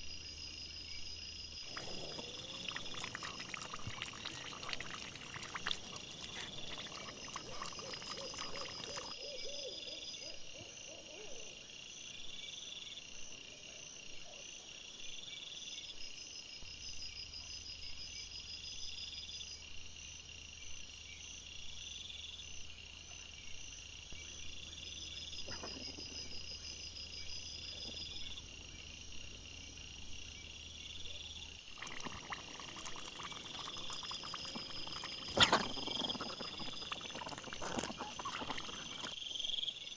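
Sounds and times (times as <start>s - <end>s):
insect short high call: 0.0s - 11.6s
wild boar rustling and rooting: 31.8s - 39.1s.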